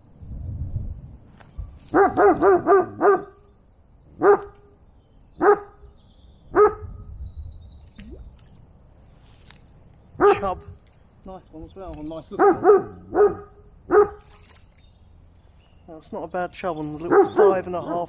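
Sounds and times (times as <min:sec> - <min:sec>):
dog barking: 0:01.9 - 0:03.4, 0:04.2 - 0:04.6, 0:05.4 - 0:05.8, 0:06.6 - 0:06.8, 0:10.2 - 0:10.5, 0:12.4 - 0:14.2, 0:17.1 - 0:18.0.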